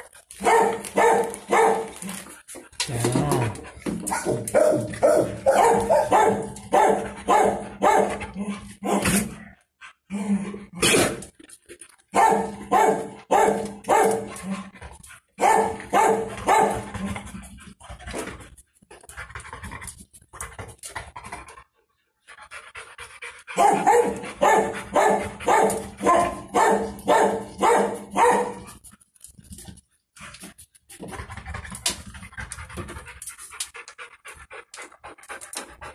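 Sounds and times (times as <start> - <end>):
dog panting: 17.2 - 26.4, 30.1 - 35.9.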